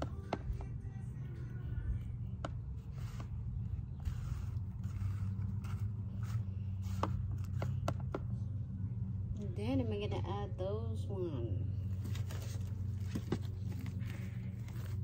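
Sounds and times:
steady low hum: 0.0s - 15.0s
soil scraping and rustling: 2.8s - 7.8s, 11.8s - 15.0s.

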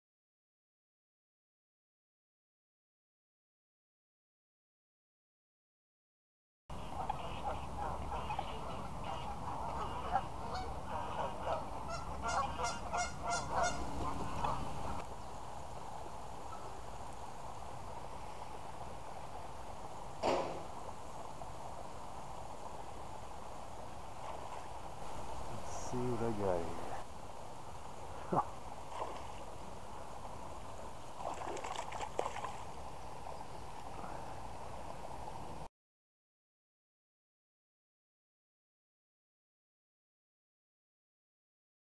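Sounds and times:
geese honking: 6.7s - 15.0s
low background noise: 6.7s - 35.7s
outdoor background noise: 6.7s - 35.7s
fish splashing: 28.8s - 29.5s, 31.1s - 32.8s.

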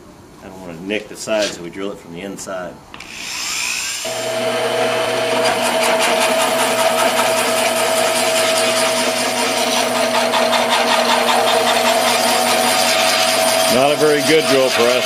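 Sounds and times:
drill press motor humming: 3.0s - 14.5s
drill bit cutting metal: 3.0s - 15.0s.

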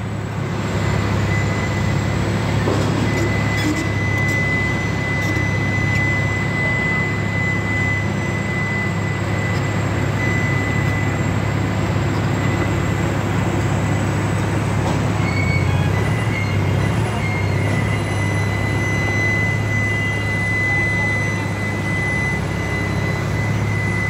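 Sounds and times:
excavator diesel engine running: 0.0s - 24.0s.

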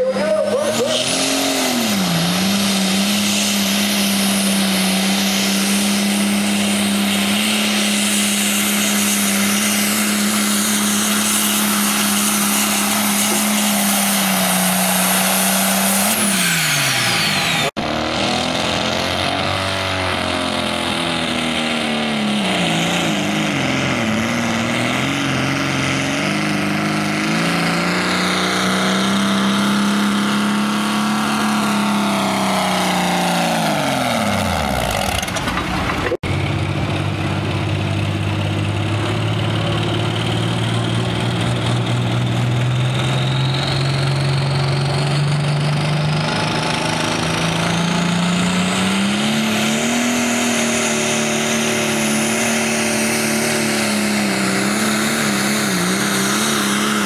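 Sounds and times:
tractor engine at full throttle: 0.0s - 57.0s.

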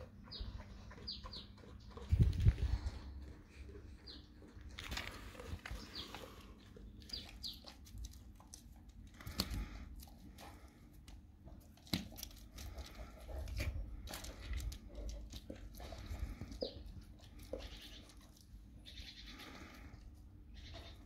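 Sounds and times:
dog licking and chewing meat: 5.3s - 18.8s.

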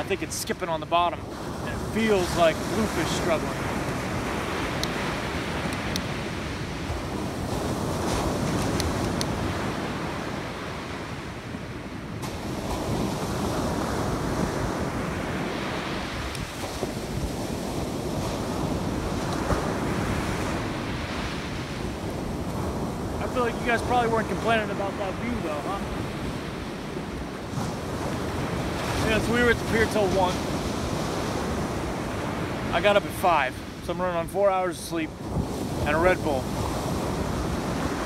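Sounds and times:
wind buffeting microphone: 0.0s - 34.3s, 35.0s - 38.0s
ocean surf breaking: 0.0s - 38.0s.

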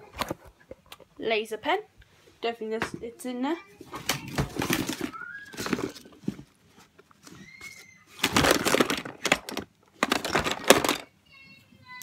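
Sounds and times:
items clicking and clattering: 3.8s - 11.1s
hands rummaging in plastic box: 4.0s - 11.1s.

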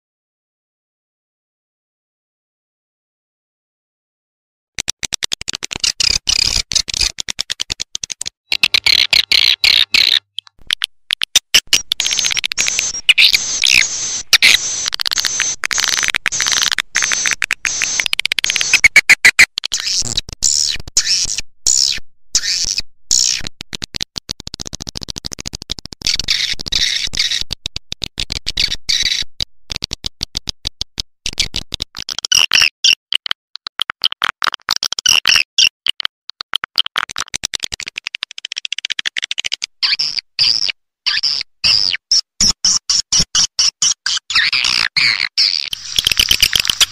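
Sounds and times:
swiftlets chirping and twittering: 11.5s - 20.0s, 45.1s - 46.9s.

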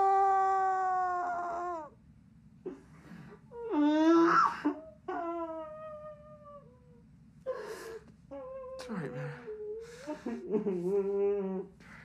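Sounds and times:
young man sobbing: 7.5s - 11.7s.

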